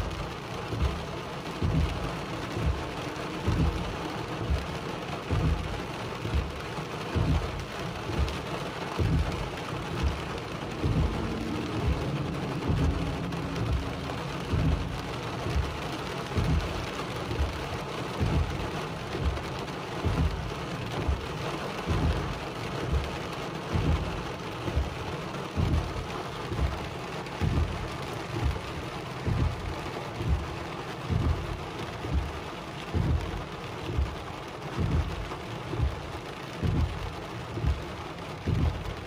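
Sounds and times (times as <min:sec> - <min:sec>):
heavy rain on car roof: 0:00.0 - 0:39.0
windshield wipers sweeping: 0:00.0 - 0:39.0
low thump: 0:10.6 - 0:17.5.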